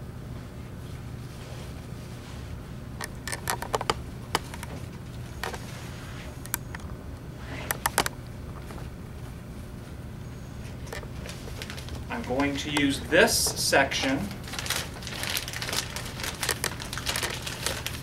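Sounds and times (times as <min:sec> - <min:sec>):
steady low hum: 0:00.0 - 0:18.0
paper wrapping crinkling: 0:10.9 - 0:13.6, 0:14.3 - 0:18.0.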